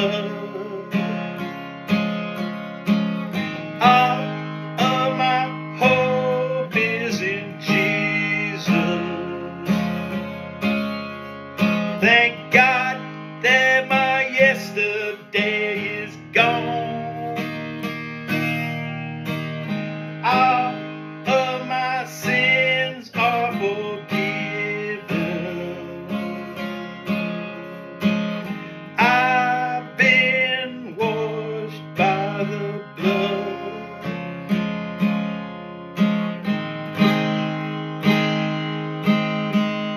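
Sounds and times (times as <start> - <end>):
man singing: 0.0 - 1.6, 3.6 - 10.4, 11.6 - 18.8, 20.1 - 34.3
acoustic guitar strummed: 0.0 - 39.9.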